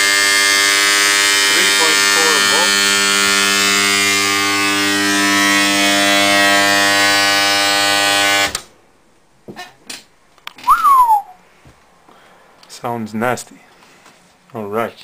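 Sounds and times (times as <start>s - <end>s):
arc welder buzzing loudly: 0.0s - 8.7s
short falling whistle: 10.6s - 11.4s.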